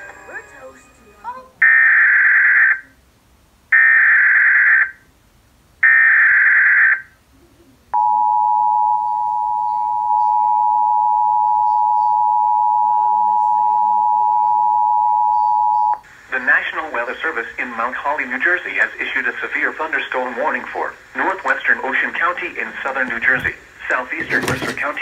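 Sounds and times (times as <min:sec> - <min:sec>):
two-tone attention signal: 0:08.0 - 0:16.0.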